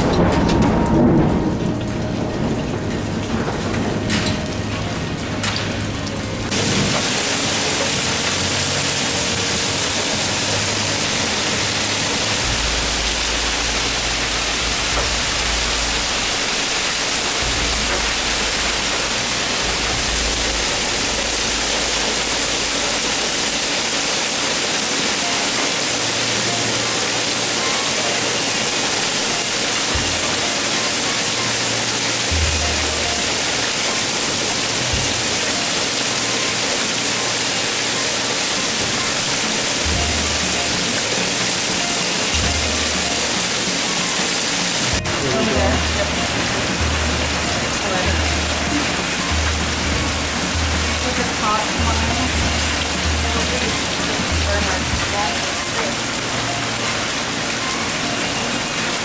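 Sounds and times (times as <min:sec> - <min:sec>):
low rumble: 0:00.0 - 0:07.2, 0:11.0 - 0:23.6, 0:44.9 - 0:55.8
heavy rain pouring: 0:00.0 - 0:59.0.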